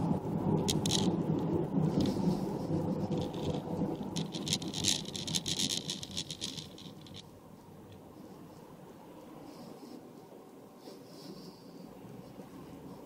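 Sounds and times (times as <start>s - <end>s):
crackles and rustles: 0.0s - 13.0s
road and engine rumble: 0.0s - 13.0s.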